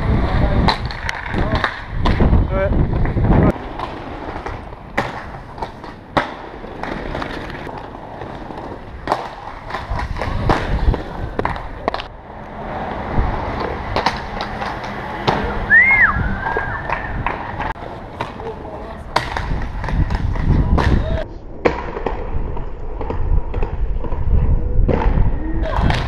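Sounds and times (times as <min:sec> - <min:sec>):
skates clacking and thudding: 0:00.0 - 0:12.1, 0:13.4 - 0:15.7, 0:16.4 - 0:26.0
skate wheels rolling over paving: 0:00.0 - 0:26.0
high whistle-like call: 0:15.7 - 0:17.1.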